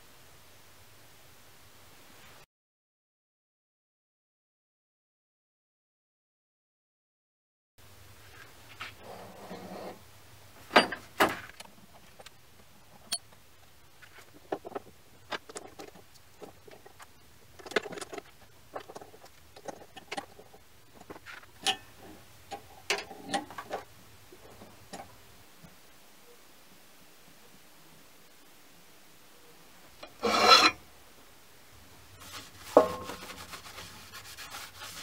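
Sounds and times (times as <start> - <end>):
steel parts clinking and knocking: 21.6 - 21.9.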